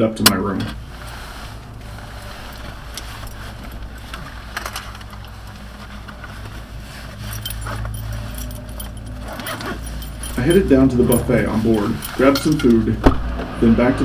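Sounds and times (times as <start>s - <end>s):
ferry engines droning: 0.0s - 14.0s
metallic clinks and jangling: 2.2s - 13.0s.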